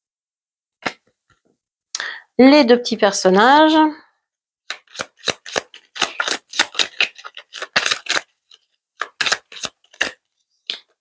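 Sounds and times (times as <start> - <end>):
cards being shuffled: 4.7 - 10.9.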